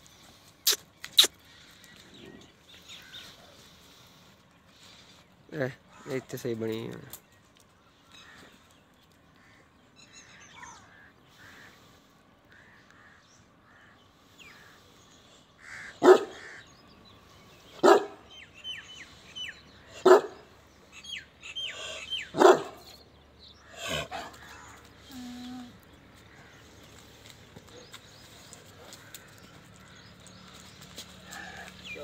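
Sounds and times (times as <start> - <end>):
small birds chirping: 0.0 - 32.0
dog barking: 16.0 - 16.4, 17.8 - 18.2, 20.0 - 20.4, 22.3 - 22.9.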